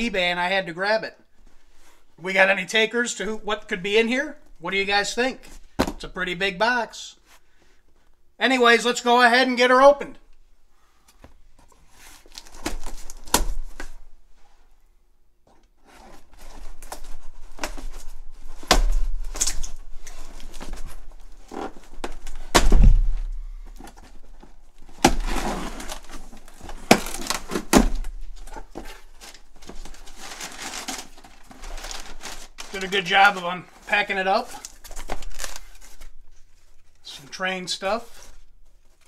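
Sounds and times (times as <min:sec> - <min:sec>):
packing paper rustling: 0:11.9 - 0:14.0, 0:15.8 - 0:37.1.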